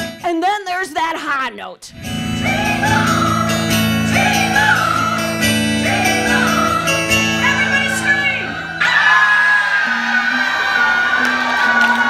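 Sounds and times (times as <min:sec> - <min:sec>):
strummed acoustic guitar: 0:01.9 - 0:08.8
woman singing: 0:02.4 - 0:08.6.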